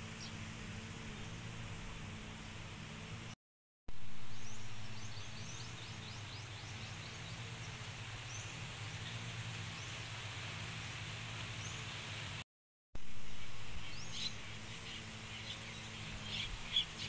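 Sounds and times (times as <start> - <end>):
low hum: 0.0 - 12.4, 13.0 - 16.7
outdoor background noise: 0.0 - 12.4, 13.0 - 17.0
small bird chirping: 13.8 - 17.0.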